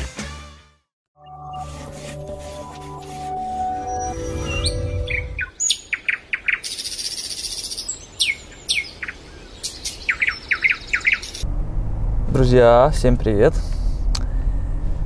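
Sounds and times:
sustained music chord: 1.2s - 5.4s
fast high bird trill: 3.6s - 11.4s
songbirds chirping: 3.9s - 11.4s.

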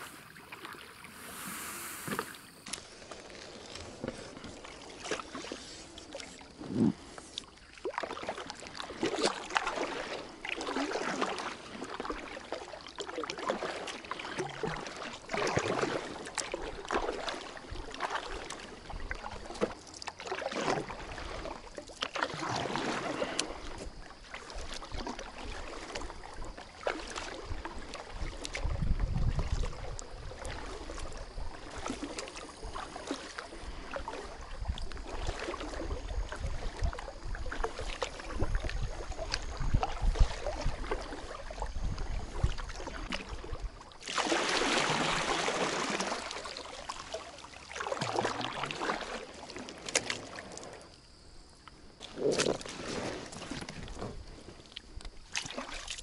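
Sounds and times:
paddle splashing in water: 0.0s - 51.1s, 51.7s - 56.0s.

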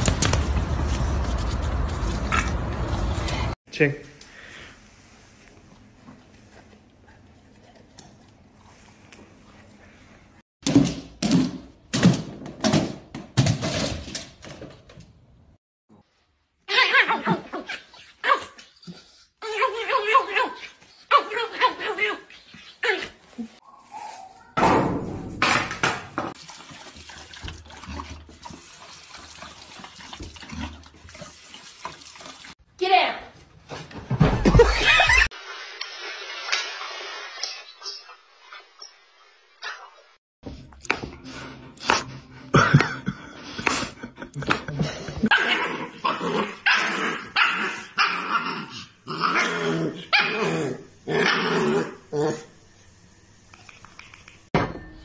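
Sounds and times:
dog lapping water: 26.4s - 32.5s.

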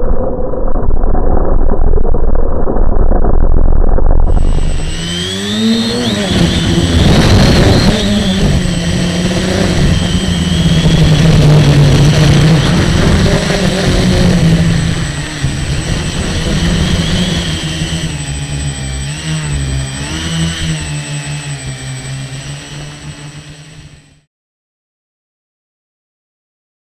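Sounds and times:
model aircraft motor whirring: 4.3s - 24.2s.

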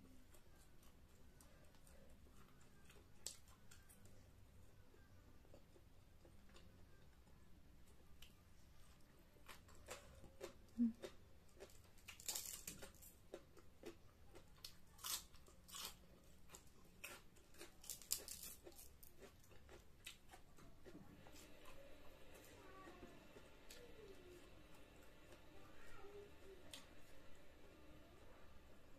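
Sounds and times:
chewing raw cabbage: 8.2s - 26.0s.

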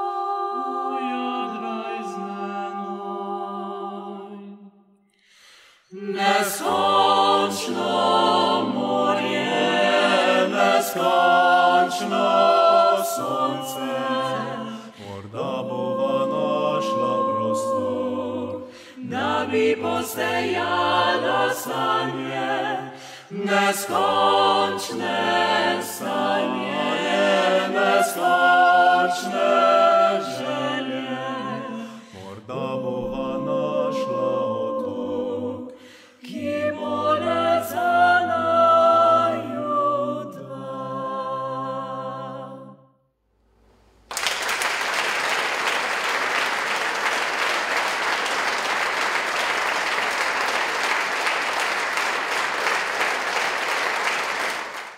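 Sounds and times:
vocal ensemble singing a cappella: 0.0s - 43.0s
audience applause: 44.1s - 54.9s.

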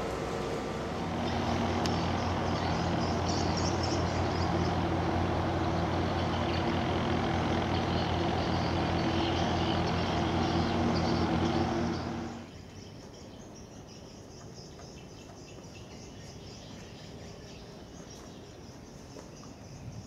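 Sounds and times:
ship engine drone: 0.0s - 12.5s
birds chirping: 0.0s - 20.0s
insects chirping: 0.0s - 20.0s.

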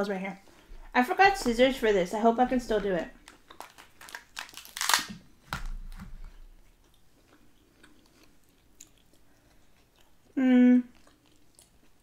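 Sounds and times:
crab shells cracking: 3.2s - 6.1s.

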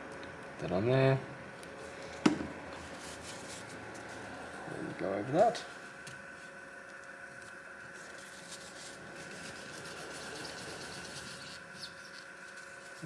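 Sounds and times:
faint steady hum: 0.0s - 13.0s
tissue paper rubbing: 2.8s - 4.5s, 7.9s - 13.0s.

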